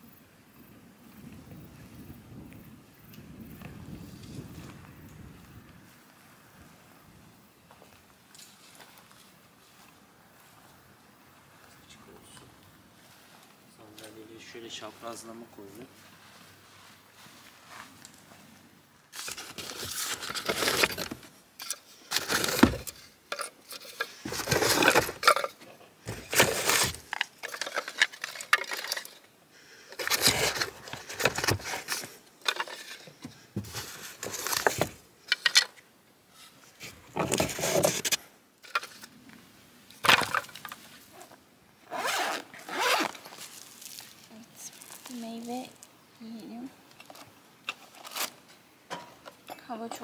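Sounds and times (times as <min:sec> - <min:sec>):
camping gear rustling: 0:03.0 - 0:50.0
camping gear knocks and clatters: 0:19.2 - 0:29.3, 0:29.9 - 0:35.8, 0:36.8 - 0:39.1, 0:40.0 - 0:41.4.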